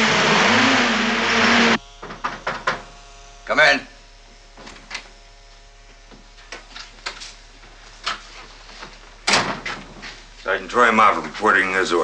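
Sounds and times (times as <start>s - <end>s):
steady electrical hum: 0.0s - 12.0s
footsteps on a floor: 5.5s - 11.6s.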